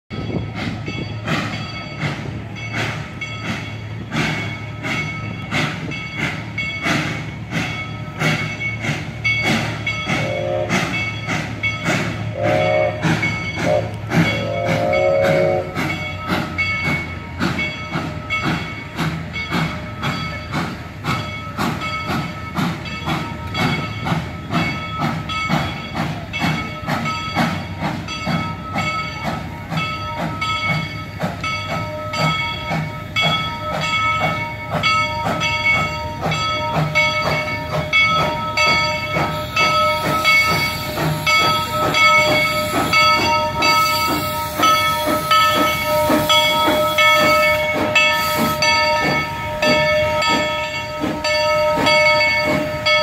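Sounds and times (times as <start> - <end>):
locomotive bell ringing: 0.1 - 53.0
steam locomotive approaching: 0.1 - 53.0
steam whistle blasts: 10.1 - 11.1, 12.2 - 16.0.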